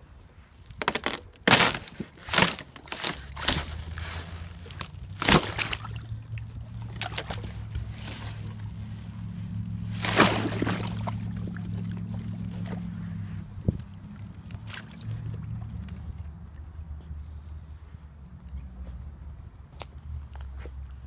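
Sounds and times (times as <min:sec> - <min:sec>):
low steady hum: 0:00.0 - 0:21.0
ice cracking and crunching: 0:00.7 - 0:08.8
water sloshing: 0:00.9 - 0:16.6.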